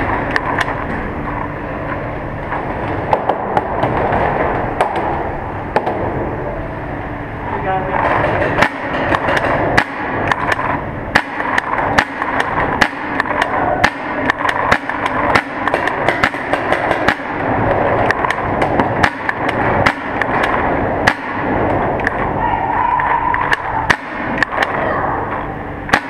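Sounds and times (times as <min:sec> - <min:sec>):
background din in a tunnel: 0:00.0 - 0:26.0
paintballs smacking hard surfaces: 0:08.0 - 0:22.2
paintball markers firing: 0:09.8 - 0:21.5.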